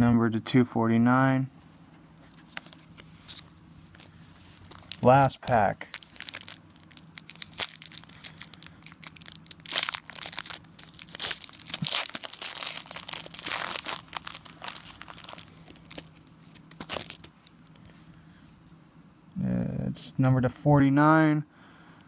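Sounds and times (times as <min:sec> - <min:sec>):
foil wrapper crinkling: 0:02.5 - 0:17.8.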